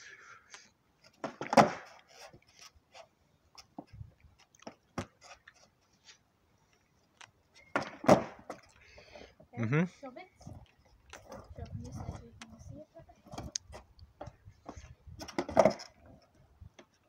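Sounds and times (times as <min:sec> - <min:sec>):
skateboard clatter: 0:01.2 - 0:02.6, 0:07.7 - 0:08.6, 0:13.2 - 0:16.3.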